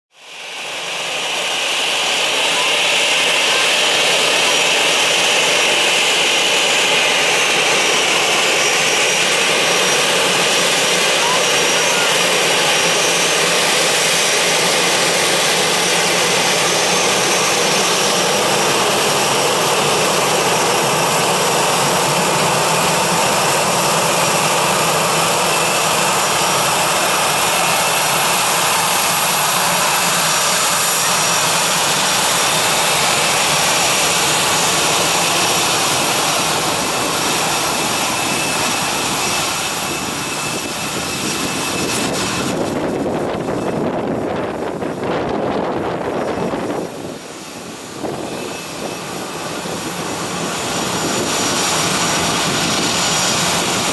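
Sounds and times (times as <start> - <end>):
jet engines running with whine: 0.1 - 53.9.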